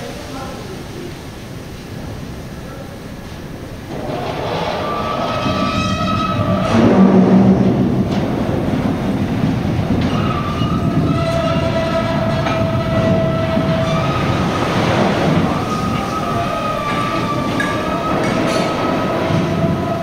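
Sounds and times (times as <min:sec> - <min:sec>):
heavy mechanical rumble of drum: 0:01.3 - 0:20.0
steel squealing: 0:03.9 - 0:08.1, 0:09.9 - 0:20.0.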